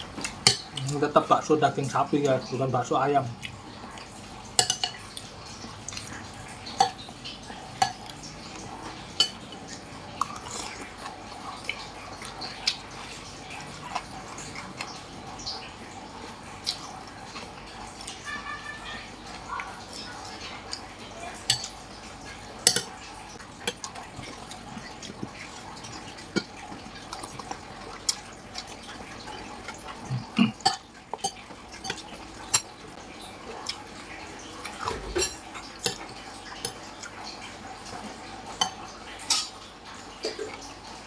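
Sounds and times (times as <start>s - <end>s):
cutlery clinking against a bowl: 0.2s - 0.9s, 4.6s - 5.3s, 6.0s - 8.3s, 9.2s - 10.8s, 21.4s - 23.0s, 29.6s - 32.7s, 34.7s - 37.1s, 38.6s - 39.6s.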